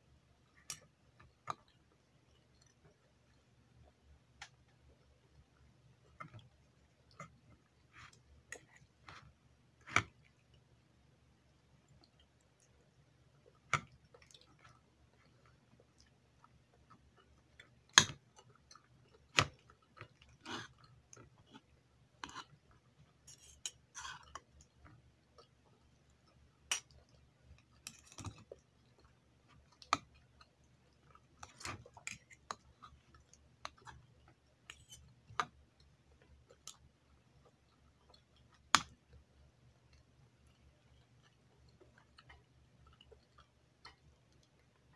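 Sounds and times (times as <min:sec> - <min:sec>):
chewing and mouth noises: 0:11.6 - 0:44.9.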